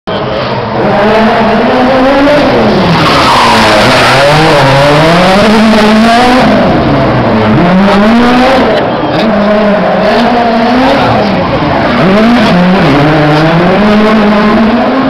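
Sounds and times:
rally car engine revving hard: 0:00.4 - 0:15.0.

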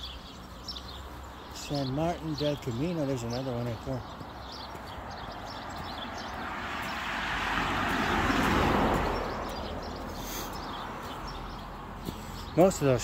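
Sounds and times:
car driving past: 0:05.5 - 0:11.6.

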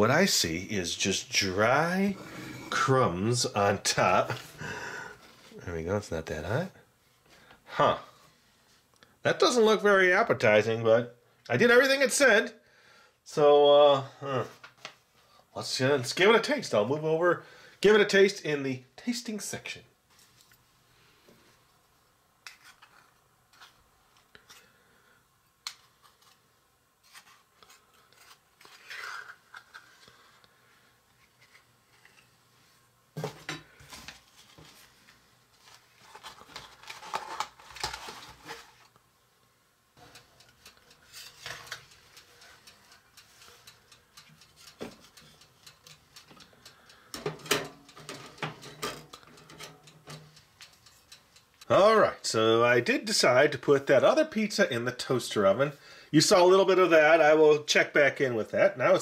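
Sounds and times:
cardboard rustling: 0:33.3 - 0:38.9
metal pizza pans clinking: 0:47.2 - 0:50.4.

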